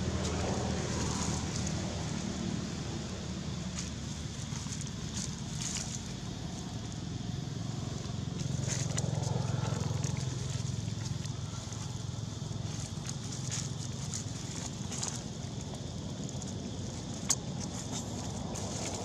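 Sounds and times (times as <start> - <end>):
dry leaves crackling underfoot: 0.0 - 19.0.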